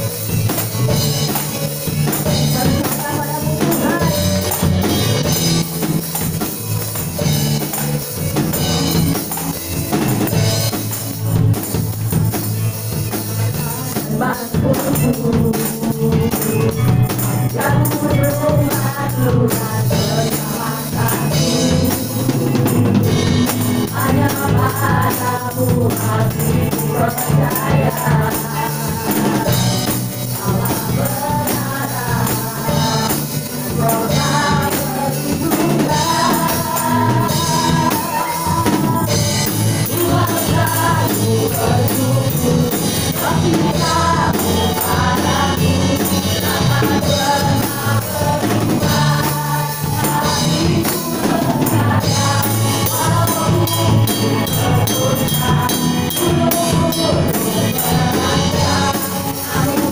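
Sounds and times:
women singing into microphones: 0.0s - 5.4s, 13.2s - 59.9s
bass guitar: 0.0s - 59.9s
keyboard: 0.0s - 59.9s
tambourines shaken: 0.0s - 59.9s.

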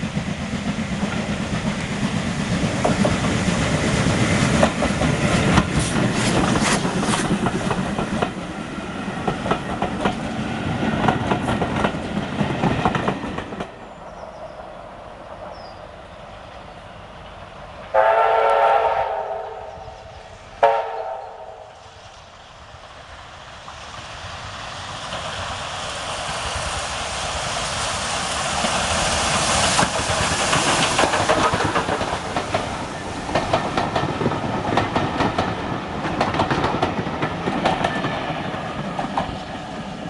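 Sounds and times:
train passing: 0.0s - 40.0s
steam locomotive whistle: 17.9s - 19.9s, 20.6s - 21.8s
coaches clattering over rail joints: 28.6s - 39.6s.

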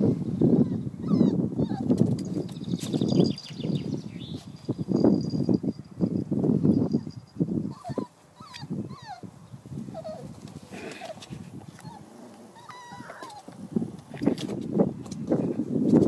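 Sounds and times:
puppies whimpering and squeaking: 0.6s - 3.6s, 7.0s - 9.3s, 9.9s - 13.6s.

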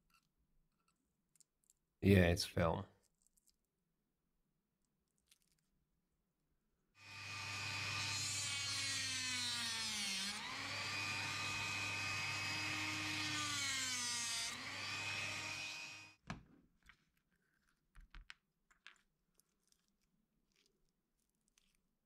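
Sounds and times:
rotary tool whining: 7.0s - 16.2s.

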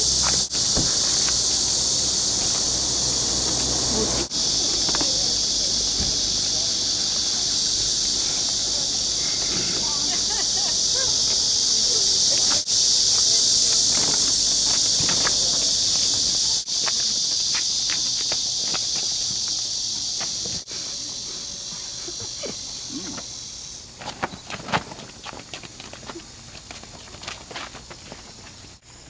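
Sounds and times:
shuffling steps on asphalt: 0.0s - 11.5s, 24.0s - 28.8s
insects droning: 0.0s - 29.0s.

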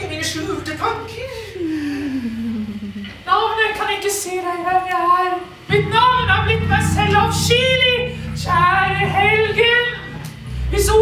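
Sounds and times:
person singing high held notes: 5.7s - 11.0s
steady low drone: 5.7s - 11.0s.

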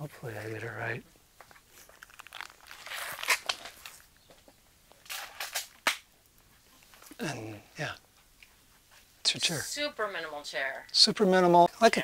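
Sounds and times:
plastic rustling and crinkling: 1.4s - 7.1s.

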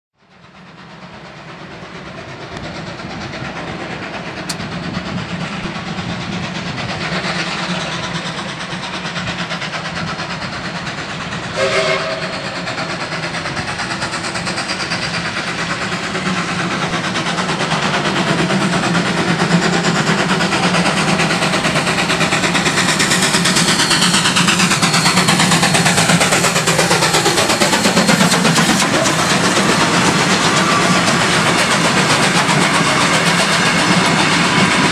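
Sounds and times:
steam locomotive passing: 0.2s - 34.9s
train whistle: 11.5s - 12.7s.

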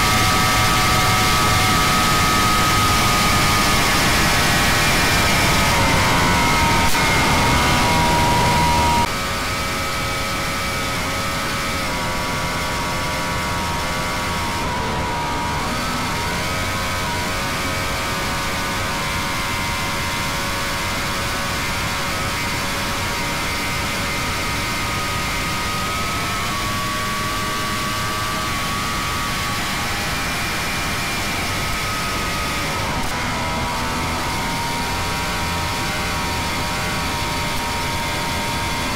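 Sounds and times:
powerboat engine drone: 0.0s - 25.3s.

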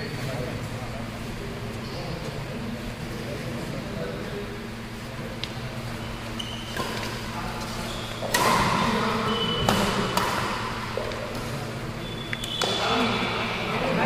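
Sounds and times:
shoe squeaks on court floor: 6.0s - 8.3s, 9.2s - 9.8s, 12.0s - 13.0s
rackets smacking a shuttlecock: 8.2s - 11.5s, 12.3s - 13.4s.

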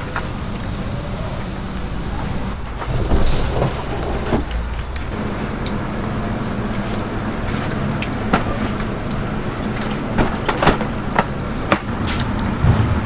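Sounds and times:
low mechanical hum: 0.0s - 13.0s
plastic crates knocking and scraping: 2.6s - 5.1s, 9.8s - 13.0s.

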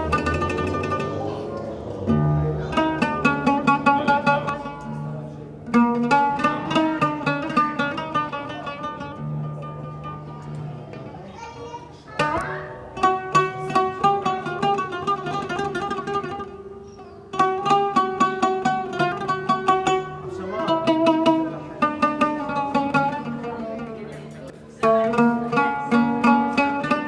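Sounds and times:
plucked string instrument music: 0.0s - 27.0s.

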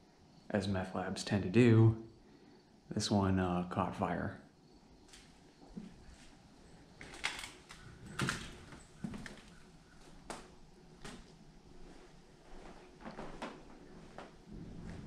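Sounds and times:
crunching footsteps: 5.0s - 15.0s.

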